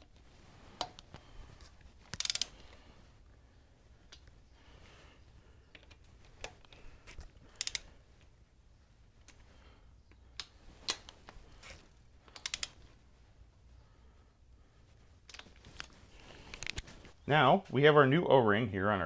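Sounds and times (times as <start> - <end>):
torque wrench clicks: 2.1 - 2.6, 7.5 - 7.9, 12.3 - 12.8.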